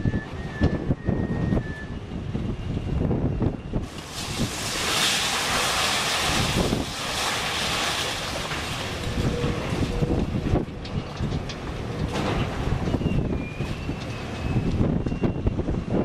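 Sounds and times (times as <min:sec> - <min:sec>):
low wind rumble on microphone: 0:00.0 - 0:16.0
rubble crashing and sliding: 0:03.8 - 0:09.9.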